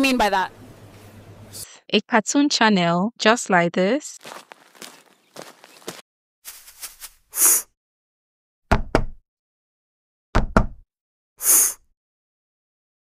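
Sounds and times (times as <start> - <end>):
knocking on door: 8.7 - 9.2, 10.4 - 10.8
hissing noise burst: 11.4 - 11.8.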